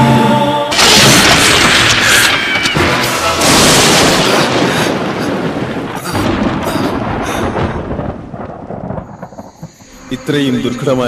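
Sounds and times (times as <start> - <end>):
music: 0.0 - 0.8, 2.8 - 3.8, 9.8 - 11.0
thunder crashing and rumbling: 0.7 - 11.0.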